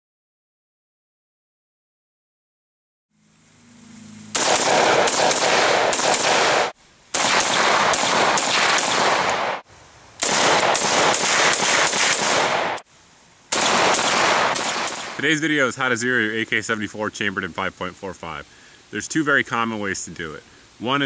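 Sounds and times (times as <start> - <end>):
rifle rapid fire: 4.3 - 9.6, 10.2 - 12.8, 13.5 - 15.2.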